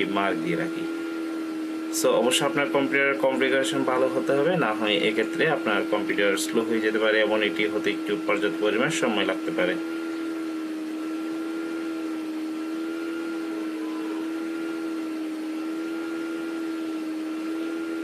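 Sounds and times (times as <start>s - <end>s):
machine hum with hiss: 0.0s - 18.0s
faint high whine: 12.8s - 15.0s.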